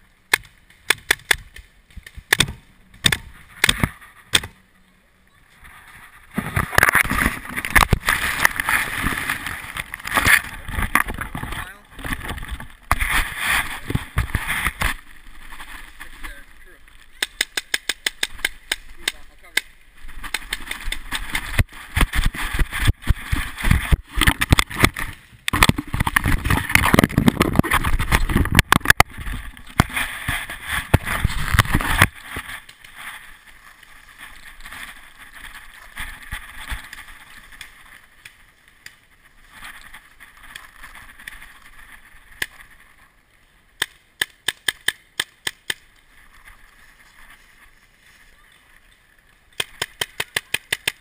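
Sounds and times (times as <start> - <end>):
sharp pops: 0.3 - 4.6, 16.2 - 33.0, 43.8 - 46.0, 49.5 - 51.0
rustling through dry leaves: 5.4 - 43.8, 45.8 - 51.0.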